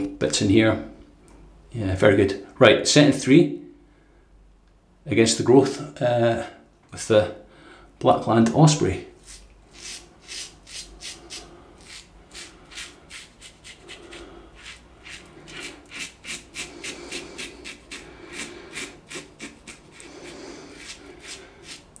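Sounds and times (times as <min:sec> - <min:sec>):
razor scraping stubble: 0:09.2 - 0:22.0.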